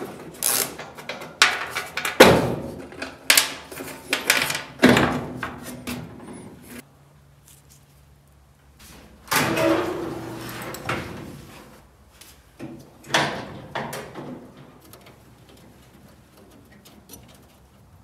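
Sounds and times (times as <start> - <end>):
metal hood scraping open: 8.8 - 11.8.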